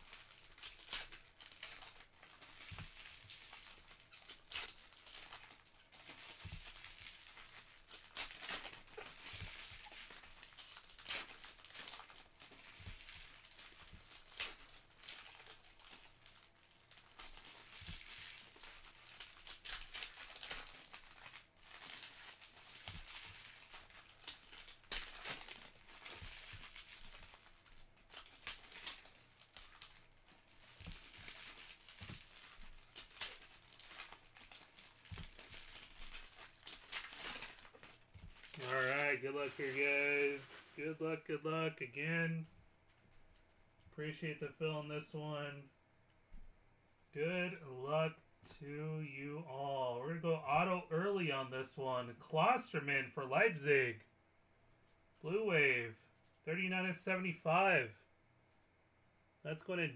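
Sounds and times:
foil wrappers crinkling and tearing: 0:00.0 - 0:41.0.

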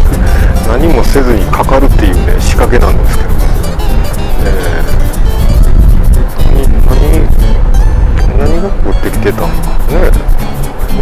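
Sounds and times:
background music: 0:00.0 - 0:11.0
steady low rumble: 0:00.0 - 0:11.0.

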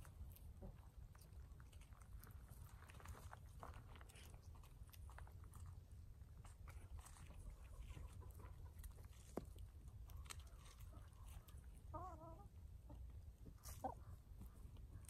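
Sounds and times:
hens scratching and pecking: 0:00.0 - 0:15.0
hen clucking: 0:07.4 - 0:09.4, 0:10.2 - 0:15.0.

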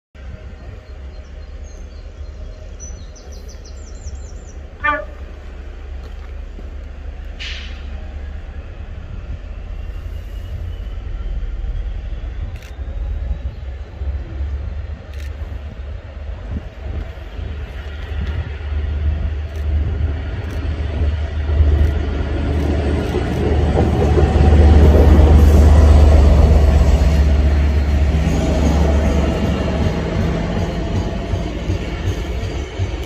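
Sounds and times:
locomotive rumble: 0:00.2 - 0:33.0
locomotive horn toot: 0:04.8 - 0:05.5.

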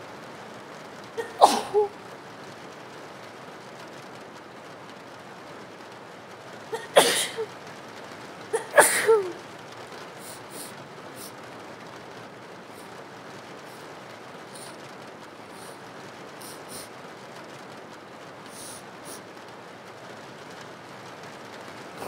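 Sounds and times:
rain hiss: 0:00.0 - 0:22.0
woman sneezing: 0:01.2 - 0:01.9, 0:06.8 - 0:07.5, 0:08.6 - 0:09.4.

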